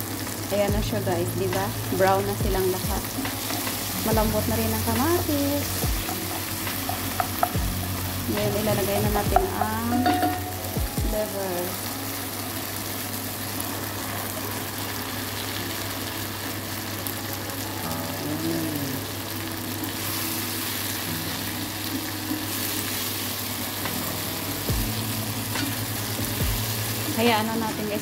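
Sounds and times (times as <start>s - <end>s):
chicken livers sizzling in frying pan: 0.0s - 28.0s.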